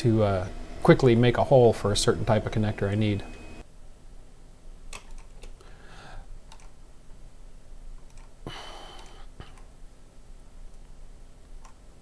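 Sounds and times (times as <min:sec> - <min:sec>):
mouse and keyboard clicks: 0:06.5 - 0:06.8, 0:08.0 - 0:08.4.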